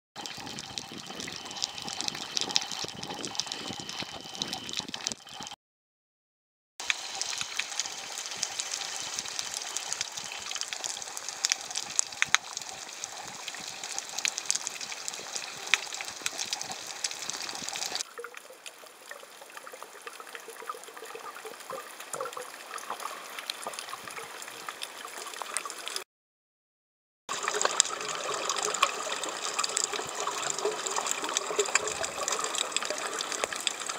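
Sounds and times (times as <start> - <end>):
underwater hiss: 6.8 - 18.0
fine crackling ticks: 6.8 - 18.8.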